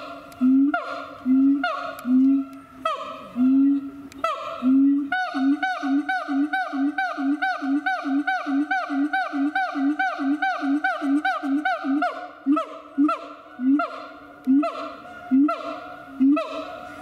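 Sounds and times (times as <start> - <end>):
ape calling: 0.0 - 17.0.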